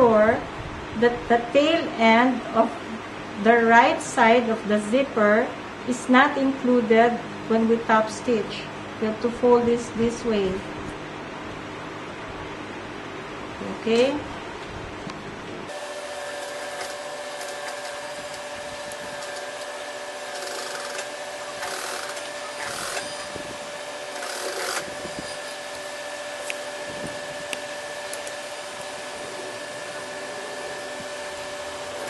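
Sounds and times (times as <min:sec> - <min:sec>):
sewing machine motor hum: 0:15.7 - 0:32.0
sewing machine stitching: 0:20.3 - 0:23.3, 0:24.1 - 0:25.5.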